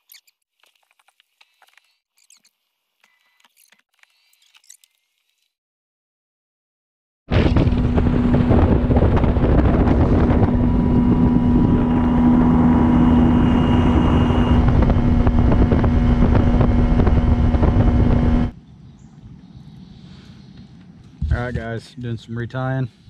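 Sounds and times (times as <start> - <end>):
outboard motor running: 7.3 - 18.5
wind on microphone: 7.3 - 18.6.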